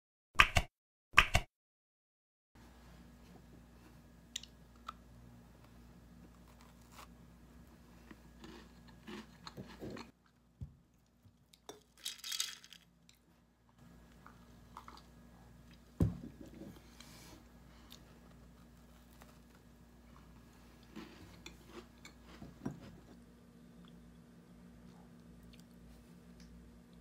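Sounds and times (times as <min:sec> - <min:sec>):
cookie crunching: 0:08.0 - 0:10.2
ice rattling in a tumbler: 0:11.9 - 0:12.8.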